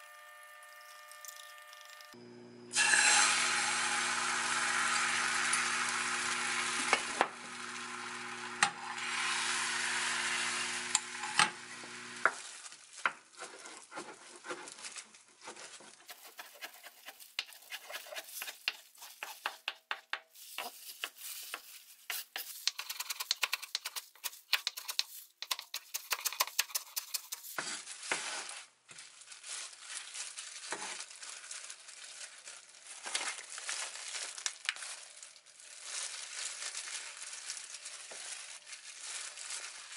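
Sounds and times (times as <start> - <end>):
egg sizzling in a frying pan: 0.0 - 11.2
plastic gloves rustling: 12.2 - 39.9
knife chopping on wooden board: 16.1 - 27.2.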